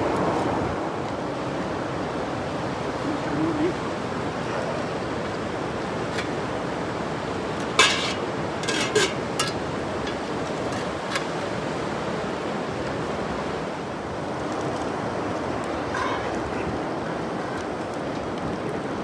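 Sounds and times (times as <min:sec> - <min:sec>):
river flowing over rapids: 0:00.0 - 0:19.0
metal lids clanking on pots: 0:07.6 - 0:11.3, 0:15.9 - 0:16.3.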